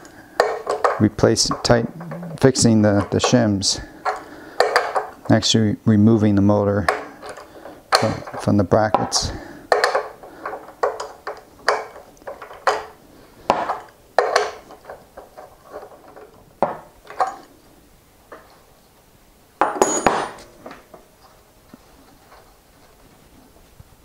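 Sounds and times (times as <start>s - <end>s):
wrench clattering on bench: 19.6s - 20.8s.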